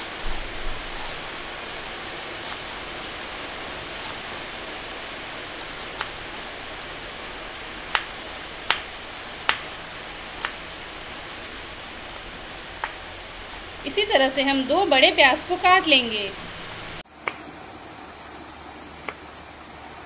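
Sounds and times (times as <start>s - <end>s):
steady hiss: 0.0s - 20.0s
knife chopping on wooden board: 19.0s - 19.3s.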